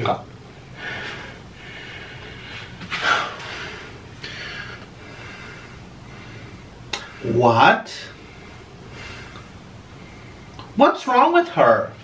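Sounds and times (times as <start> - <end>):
quiet breathing: 0.6 - 7.4, 8.0 - 10.7.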